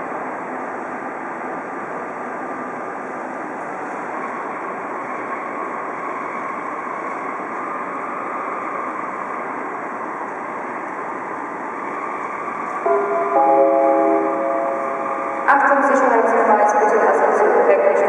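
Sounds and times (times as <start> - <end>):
sustained chord of held pitches: 12.8 - 16.5.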